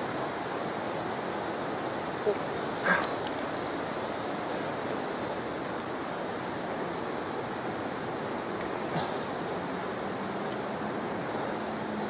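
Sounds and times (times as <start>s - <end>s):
flowing water rushing: 0.0s - 12.0s
water dripping from a net: 2.4s - 4.2s.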